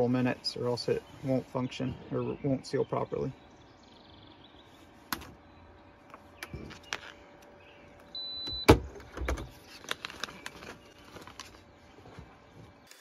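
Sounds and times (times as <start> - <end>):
high beep: 8.2 - 8.7
plastic bag crinkling: 9.5 - 11.7.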